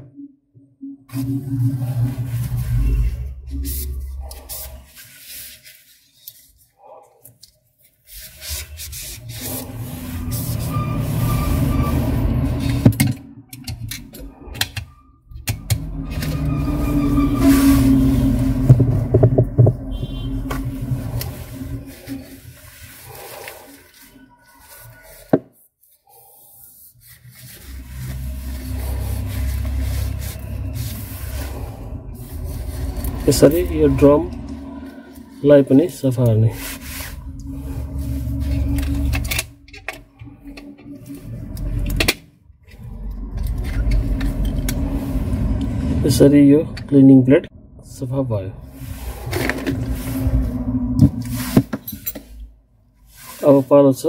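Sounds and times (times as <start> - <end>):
cloth rubbing on plastic: 1.1 - 6.9, 7.8 - 11.8, 16.2 - 34.2, 34.8 - 39.1, 53.0 - 54.0
low motor hum: 15.2 - 23.0, 27.4 - 52.6.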